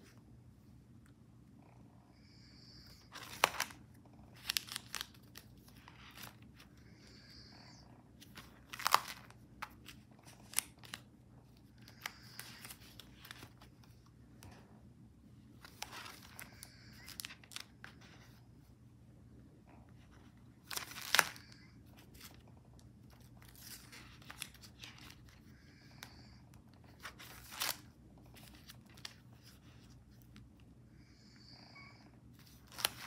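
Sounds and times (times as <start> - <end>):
paper pages rustling: 3.1 - 6.7, 7.3 - 14.5, 15.6 - 18.4, 20.0 - 26.1, 26.8 - 30.4, 32.4 - 33.0.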